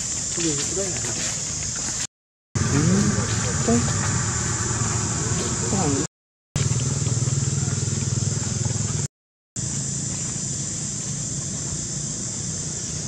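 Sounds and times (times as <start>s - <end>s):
vehicle engine running: 2.6s - 13.0s
high hiss: 9.6s - 13.0s.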